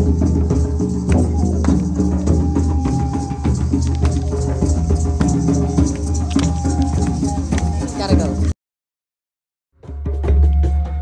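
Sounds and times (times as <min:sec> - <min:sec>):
shakers rattling: 0:00.0 - 0:08.5
hand drums: 0:00.0 - 0:08.6, 0:09.8 - 0:11.0.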